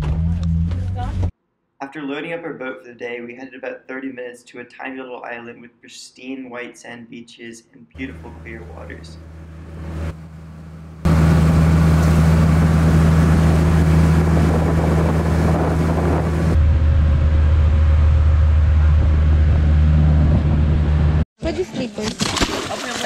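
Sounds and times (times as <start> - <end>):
boat engine drone: 8.0 - 21.2
rush of wind and water: 11.1 - 16.6.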